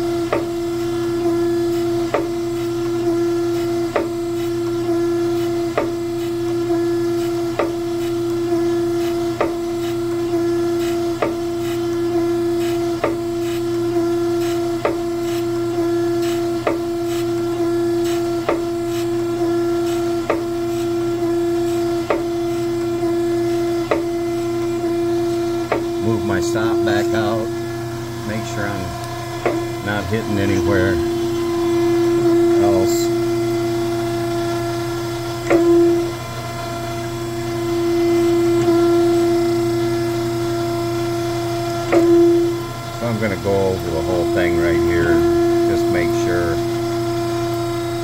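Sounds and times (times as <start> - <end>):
grinding wheel cutting metal: 0.0 - 48.0
surface grinder humming: 23.2 - 48.0.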